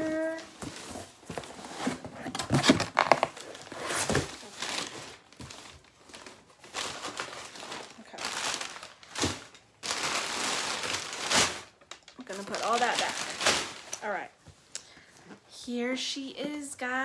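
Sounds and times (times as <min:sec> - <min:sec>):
cardboard boxes being handled: 0:00.2 - 0:09.5
packing paper crinkling: 0:01.8 - 0:14.2.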